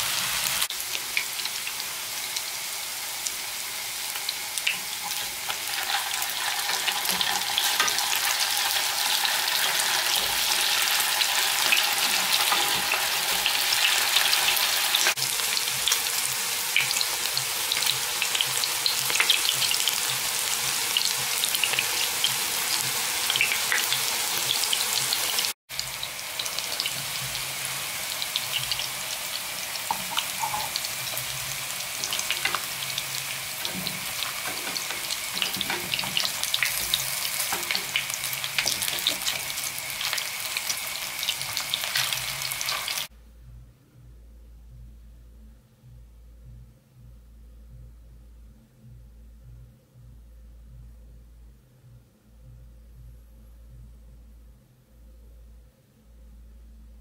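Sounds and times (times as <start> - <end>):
meatballs sizzling in oil: 0.0 - 43.1.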